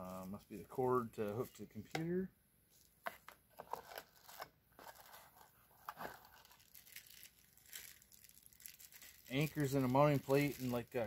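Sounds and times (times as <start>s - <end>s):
plastic bag crinkling: 5.9s - 11.0s
plastic bag torn open: 6.0s - 11.0s.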